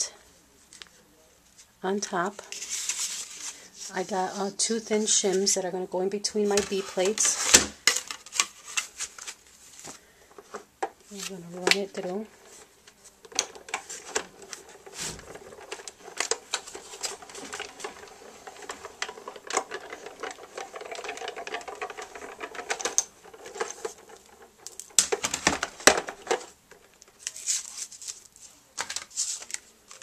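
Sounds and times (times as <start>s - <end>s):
paper rustling: 2.4s - 5.4s, 6.4s - 30.0s
plastic plates clacking: 6.4s - 27.7s
hand-cranked machine clicking and creaking: 13.2s - 27.0s.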